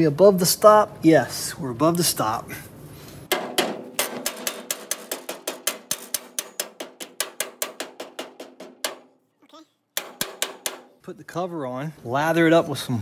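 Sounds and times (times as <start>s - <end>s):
mallet striking steel plate: 3.3s - 9.2s, 10.0s - 11.0s.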